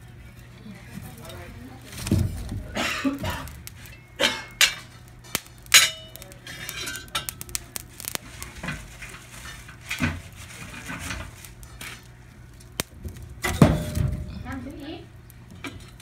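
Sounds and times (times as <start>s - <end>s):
wood fire crackling and popping: 0.0s - 16.0s
dishes and cutlery clinking: 2.8s - 5.0s, 5.7s - 7.4s.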